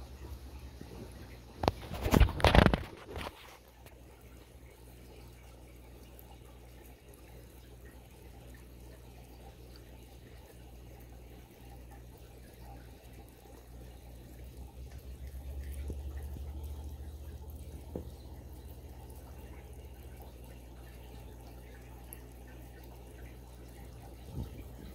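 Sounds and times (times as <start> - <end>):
aquarium filter bubbling: 0.0 - 24.9
steady low hum: 0.0 - 24.9.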